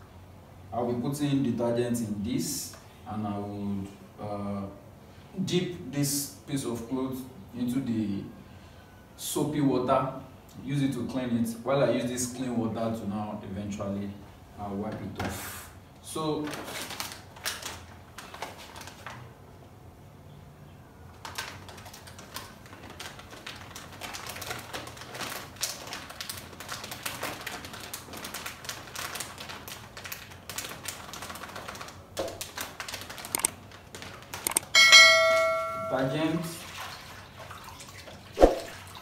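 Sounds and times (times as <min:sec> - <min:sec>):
plastic packet crinkling: 0:16.4 - 0:19.3, 0:21.2 - 0:34.7
ringing notification chime: 0:34.8 - 0:36.2.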